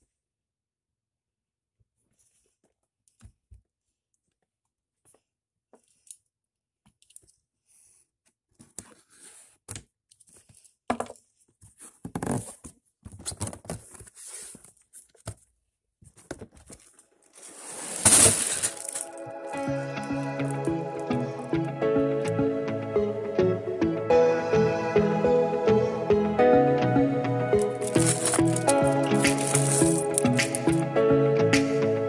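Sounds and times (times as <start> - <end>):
packaging clicks and rustles: 16.2 - 21.2, 27.6 - 30.8
packaging tearing: 16.7 - 19.6, 27.6 - 30.8.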